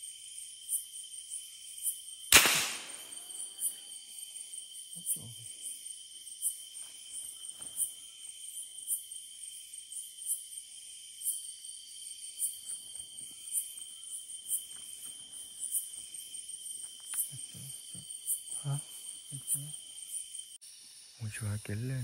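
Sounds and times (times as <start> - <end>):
crickets trilling: 0.0 - 22.0
pulsing insect call: 0.0 - 22.0.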